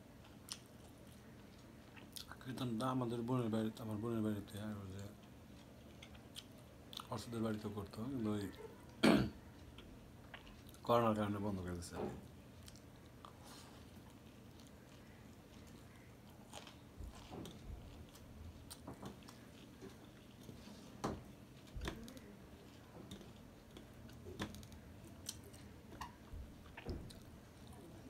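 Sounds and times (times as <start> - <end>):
person chewing food: 0.1 - 2.4, 5.0 - 7.2, 8.8 - 10.9, 12.2 - 28.0.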